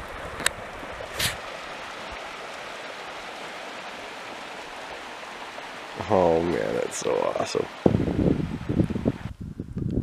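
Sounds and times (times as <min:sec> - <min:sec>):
rushing water: 0:00.0 - 0:09.3
short splash: 0:01.0 - 0:01.8.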